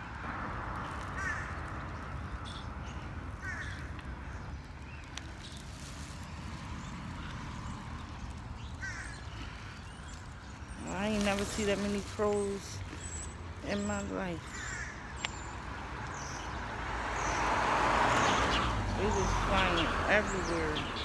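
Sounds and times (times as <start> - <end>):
crows cawing: 1.1 - 4.5, 8.8 - 10.0, 14.4 - 15.3.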